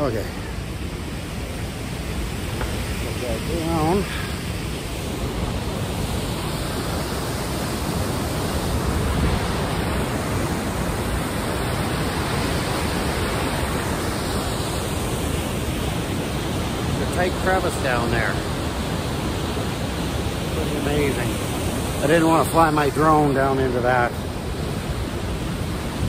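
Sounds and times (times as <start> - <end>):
waterfall rushing: 0.0 - 26.0.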